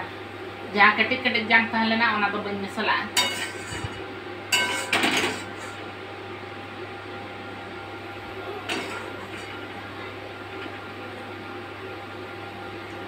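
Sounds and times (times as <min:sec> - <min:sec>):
steady low hum: 0:00.0 - 0:13.0
metal spoon scraping a wok: 0:03.2 - 0:04.0.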